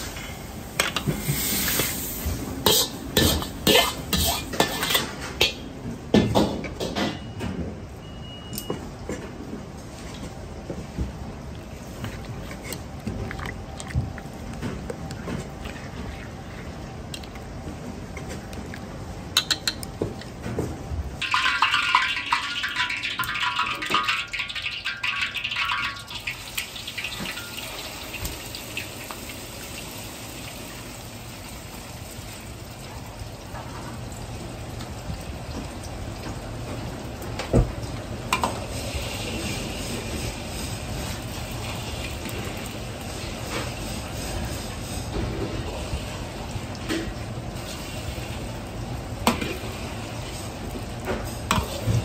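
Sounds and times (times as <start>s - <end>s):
wok burner running: 0.0s - 7.1s, 21.2s - 52.0s
egg sizzling in hot oil: 21.2s - 32.6s.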